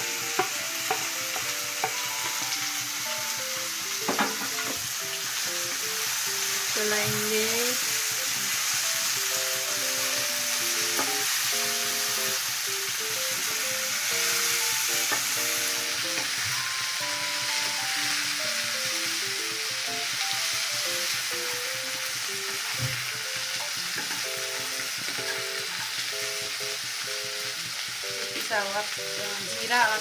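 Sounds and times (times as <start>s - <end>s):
green beans sizzling in oil: 0.0s - 30.0s
soft instrumental tune: 0.0s - 30.0s.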